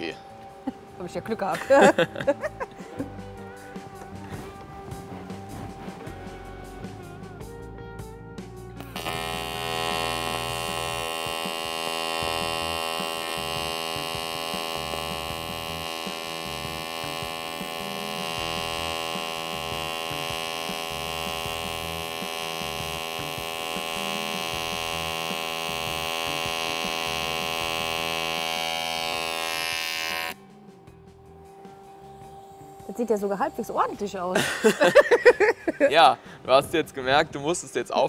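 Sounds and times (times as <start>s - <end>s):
welding arc buzzing: 8.8s - 30.4s, 31.8s - 35.7s.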